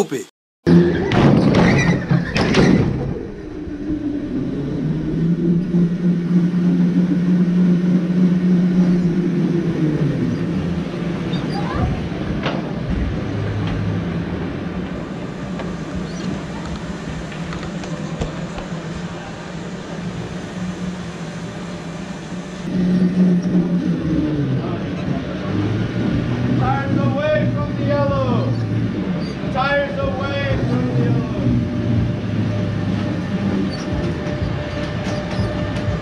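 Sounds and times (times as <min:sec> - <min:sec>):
go-kart motor humming: 0:00.7 - 0:36.0
knocks and rattles: 0:00.9 - 0:03.2.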